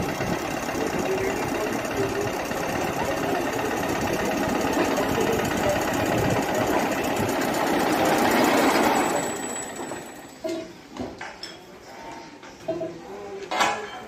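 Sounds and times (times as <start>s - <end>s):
engine running with mechanical rattle: 0.0s - 10.5s.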